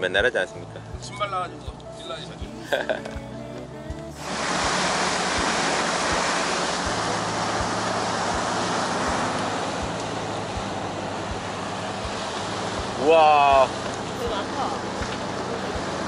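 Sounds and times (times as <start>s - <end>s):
low steady engine drone: 0.0s - 16.0s
wind: 0.0s - 16.0s
water rushing past boat hull: 4.2s - 16.0s.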